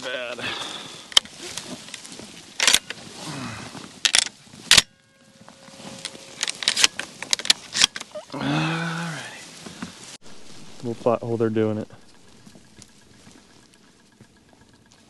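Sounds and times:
dry grass rustling: 0:00.0 - 0:15.0
shotgun clicks and knocks: 0:02.6 - 0:03.0, 0:04.0 - 0:04.9, 0:06.0 - 0:08.1.

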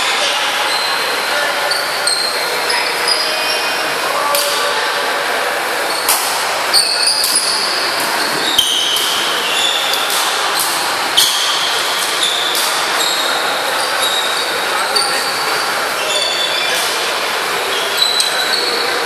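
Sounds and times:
racket hitting shuttlecock: 0:06.1 - 0:06.4, 0:10.0 - 0:12.9.

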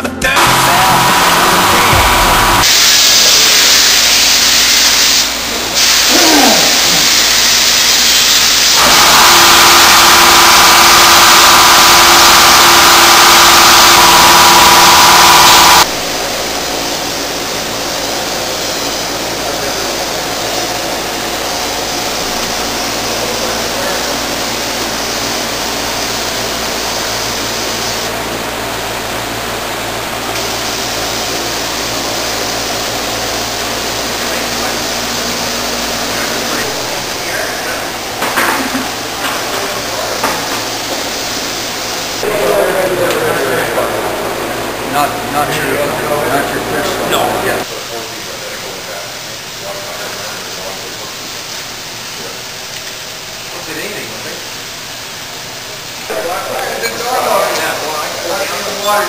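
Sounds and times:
low hum: 0:00.0 - 0:02.7
paint spray gun hissing: 0:00.4 - 0:37.3, 0:39.8 - 0:42.2.

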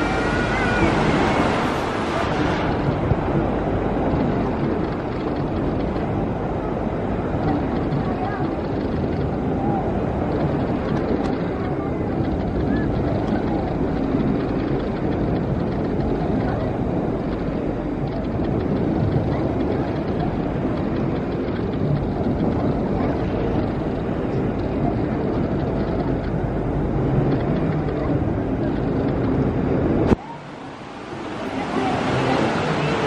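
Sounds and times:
wave pool water churning: 0:00.0 - 0:33.0
murmur of voices: 0:15.9 - 0:33.0.

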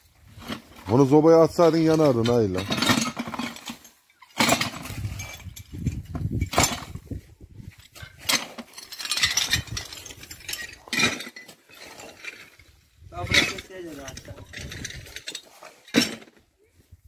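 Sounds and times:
ceramic tile pieces clinking: 0:08.7 - 0:11.5.

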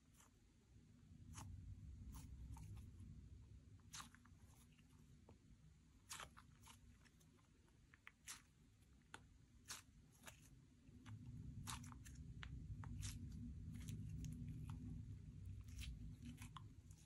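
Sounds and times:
low rumble: 0:00.8 - 0:05.8, 0:10.8 - 0:17.0.

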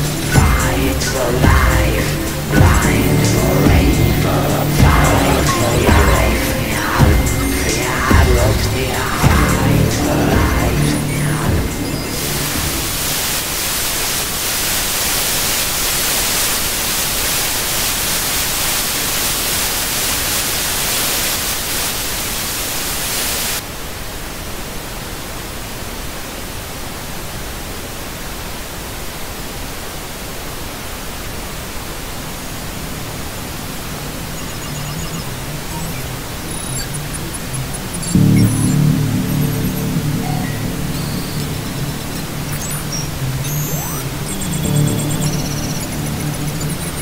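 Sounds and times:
television static hiss: 0:00.0 - 0:47.0.

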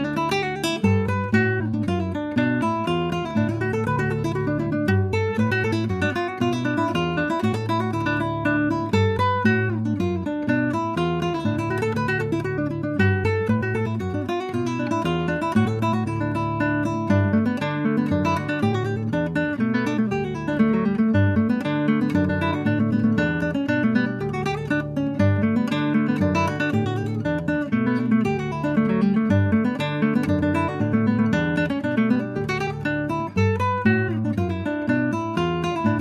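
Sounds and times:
acoustic guitar music: 0:00.0 - 0:36.0.

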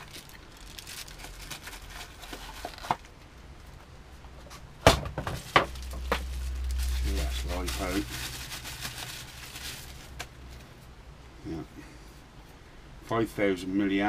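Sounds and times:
packaging rustling and crinkling: 0:00.0 - 0:03.8, 0:05.1 - 0:10.8.

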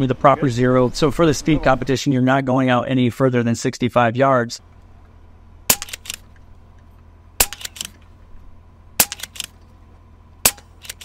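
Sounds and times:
air rifle shots: 0:05.7 - 0:06.4, 0:07.4 - 0:08.1, 0:09.0 - 0:09.6, 0:10.4 - 0:11.0.

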